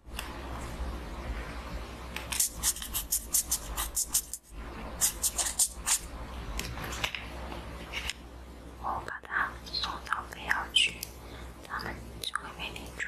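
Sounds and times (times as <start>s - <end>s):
pen scratching on paper: 2.3s - 4.4s, 5.0s - 6.1s.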